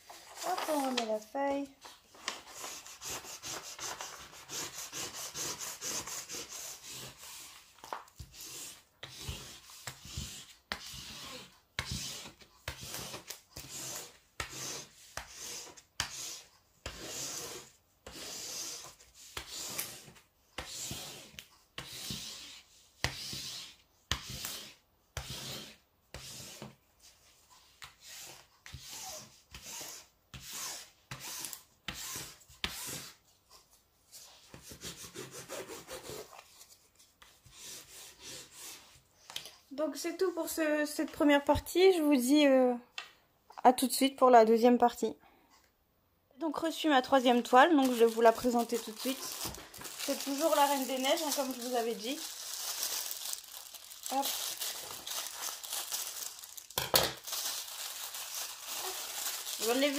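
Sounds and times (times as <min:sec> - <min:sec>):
hands rubbing paper: 0:00.1 - 0:24.6, 0:47.2 - 0:59.9.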